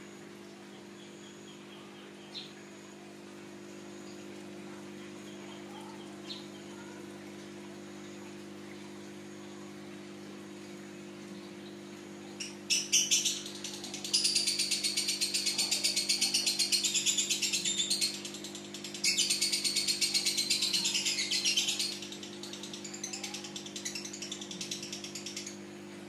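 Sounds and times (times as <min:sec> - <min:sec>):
bird chirps: 0:12.3 - 0:25.6
lovebird chattering trill: 0:12.4 - 0:25.6.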